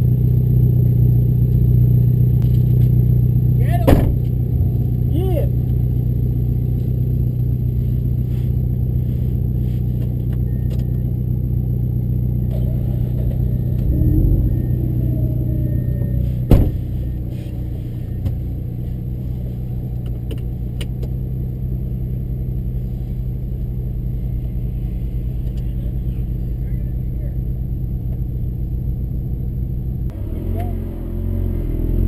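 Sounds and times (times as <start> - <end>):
rotary engine idling: 2.1 - 30.1
sharp thump: 3.9 - 4.8, 16.0 - 17.2.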